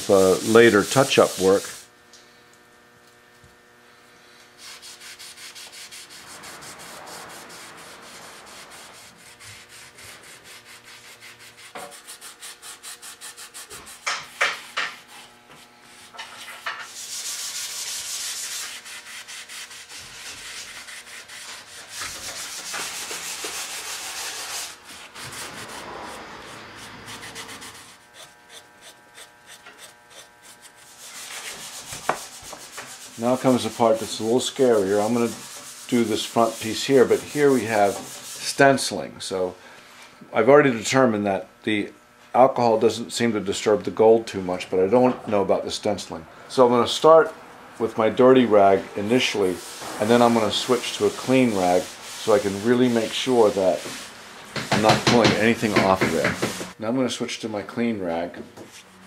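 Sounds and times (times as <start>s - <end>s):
rag rubbing on wooden chair: 0.0s - 1.9s, 4.6s - 38.6s, 49.0s - 56.8s.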